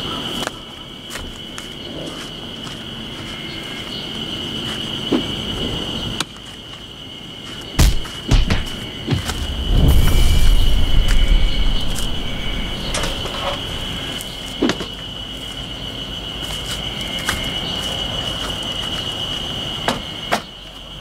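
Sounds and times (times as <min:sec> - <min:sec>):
insects buzzing: 0:00.0 - 0:21.0
wind rumble on microphone: 0:09.1 - 0:14.4.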